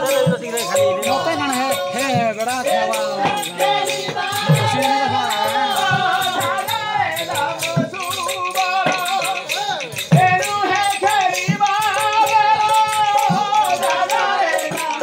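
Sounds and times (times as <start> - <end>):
barrel drum beats: 0.0 - 15.0
hand percussion rattle: 0.0 - 15.0
person singing: 0.0 - 15.0.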